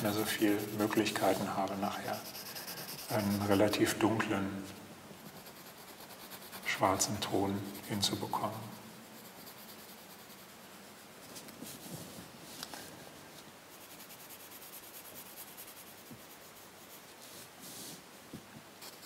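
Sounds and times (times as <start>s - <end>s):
pencil scratching on paper: 0.0s - 4.0s, 5.2s - 11.0s, 13.7s - 17.2s, 18.8s - 19.0s.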